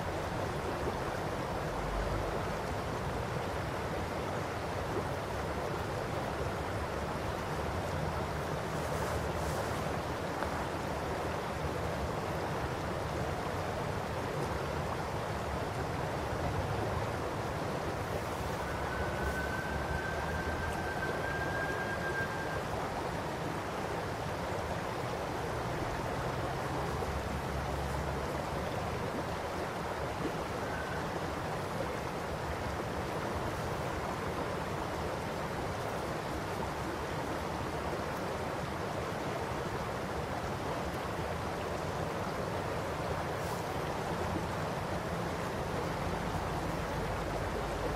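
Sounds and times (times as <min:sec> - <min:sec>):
river babbling over stones: 0:00.0 - 0:47.9.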